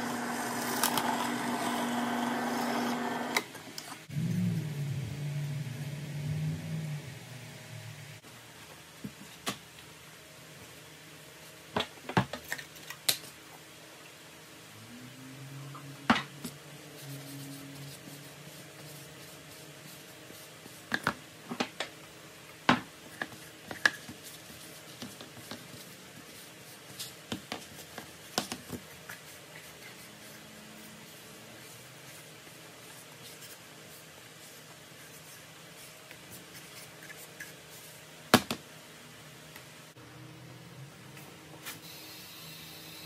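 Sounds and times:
low hum: 4.0s - 8.2s.

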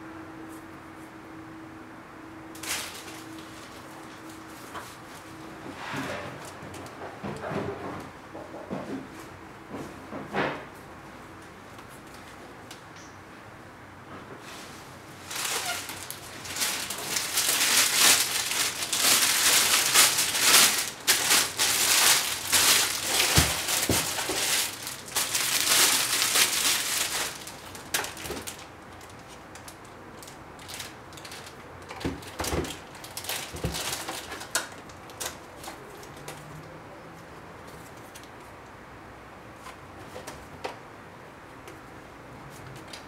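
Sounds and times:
plastic bag crinkling: 2.6s - 4.7s, 15.1s - 36.3s.

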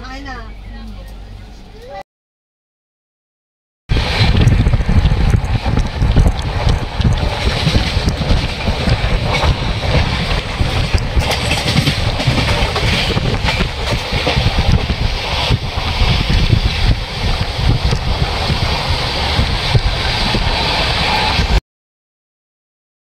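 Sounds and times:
train wheels rumbling on rail: 3.9s - 21.6s
wind buffeting microphone: 3.9s - 21.6s.

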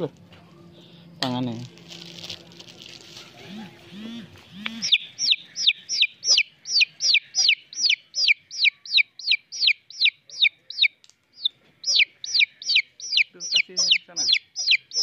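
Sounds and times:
bird calling sharp descending notes: 3.4s - 15.0s.

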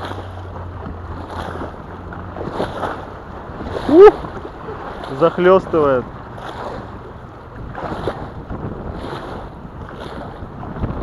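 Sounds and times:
gusty wind on microphone: 0.0s - 11.0s
waves splashing against bank: 0.0s - 11.0s
person exclaiming: 3.8s - 4.2s.

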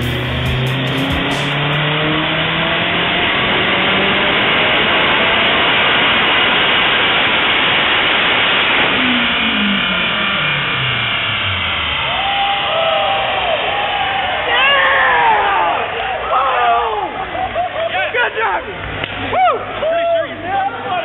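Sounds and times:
car engine revving at full throttle: 0.0s - 12.5s.

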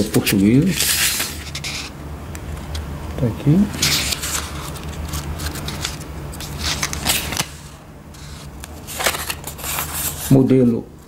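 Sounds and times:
booklet pages flipping: 0.1s - 1.9s, 3.7s - 10.6s.

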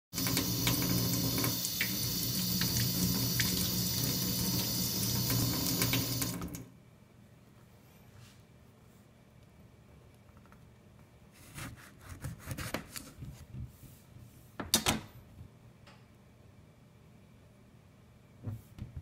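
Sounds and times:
tap water splashing into sink: 0.2s - 6.6s.

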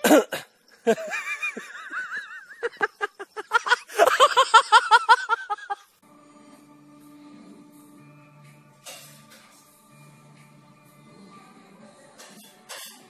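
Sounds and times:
faint music: 0.0s - 13.0s
person laughing hard: 0.8s - 5.9s.

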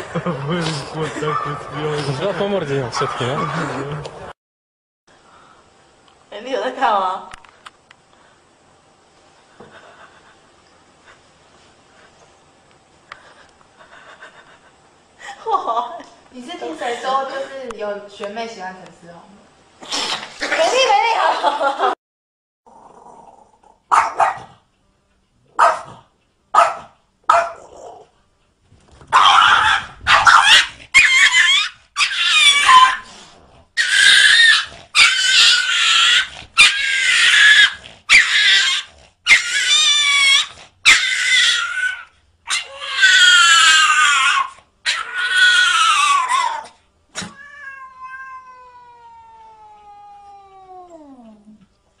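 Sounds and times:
cat yowling: 29.2s - 33.0s, 33.8s - 51.4s.

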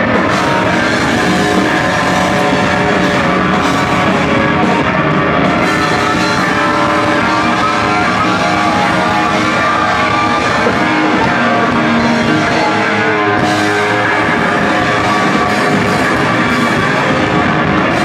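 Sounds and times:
distorted electric guitar: 0.0s - 18.0s
hard rock band playing live: 0.0s - 18.0s.

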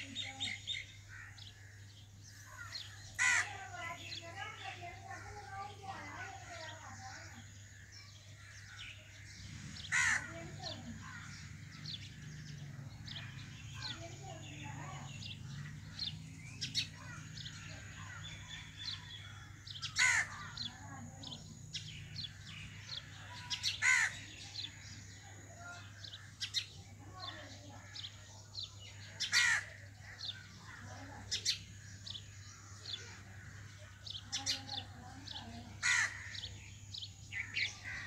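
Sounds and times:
small birds chirping: 0.0s - 38.0s
harsh cawing calls: 3.1s - 3.8s, 9.8s - 12.1s, 16.8s - 20.9s, 22.3s - 24.8s, 29.2s - 31.0s, 35.8s - 36.7s.

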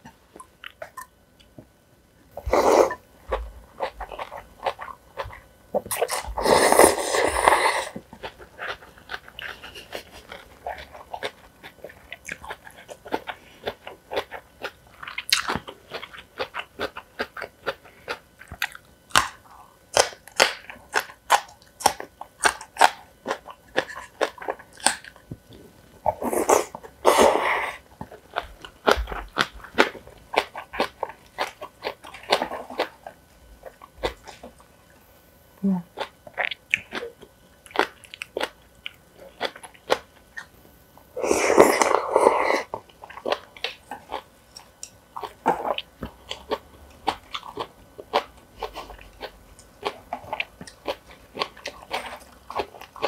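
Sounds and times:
chewing and crunching: 3.3s - 34.9s, 35.9s - 40.6s, 41.4s - 53.0s
slurping noodles: 6.0s - 8.0s.

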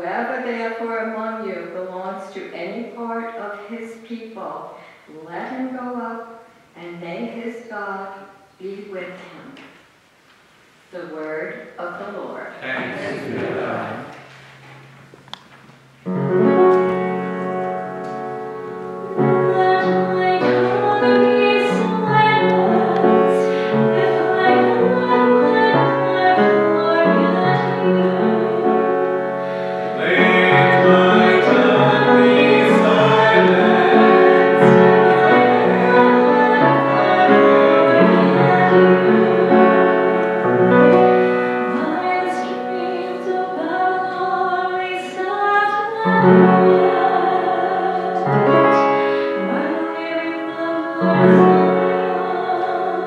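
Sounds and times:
piano playing: 12.8s - 53.0s
woman singing into microphone: 19.4s - 28.9s, 30.0s - 39.9s, 41.6s - 53.0s.

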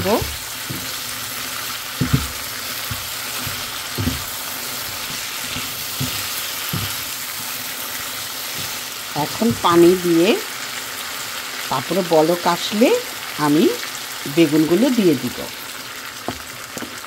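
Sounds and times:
vegetables sizzling in a frying pan: 0.0s - 17.0s
spatula knocking against pan: 1.9s - 7.2s.

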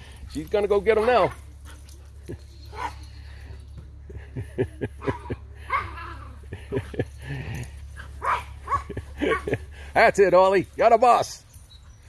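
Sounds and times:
dogs yipping and barking: 0.0s - 4.0s, 4.8s - 9.9s, 10.7s - 12.0s.

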